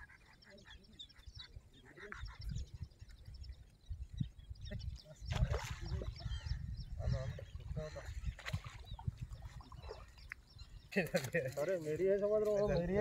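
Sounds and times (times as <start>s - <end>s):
small birds chirping: 0.0s - 13.0s
fish splashing in water: 5.3s - 6.2s, 8.3s - 10.2s.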